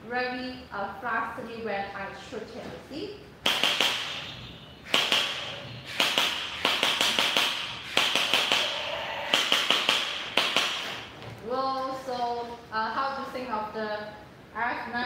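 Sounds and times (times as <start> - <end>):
toy blaster rapid-fire bursts: 4.9 - 11.0.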